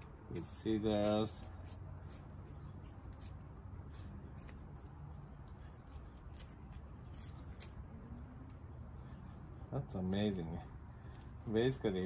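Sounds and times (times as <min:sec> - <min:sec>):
scissors snipping hair: 0:00.0 - 0:05.0, 0:05.9 - 0:07.8.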